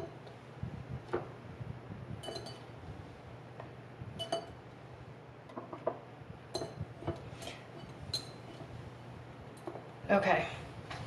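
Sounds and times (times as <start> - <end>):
glass jars clinking: 2.2 - 2.6.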